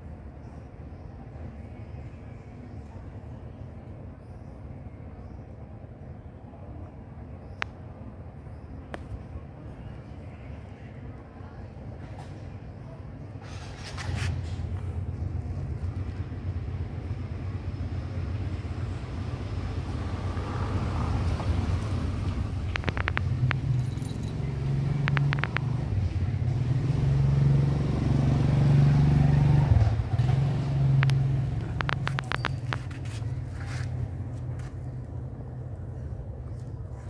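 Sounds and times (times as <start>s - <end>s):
vehicle engine running: 13.6s - 36.9s.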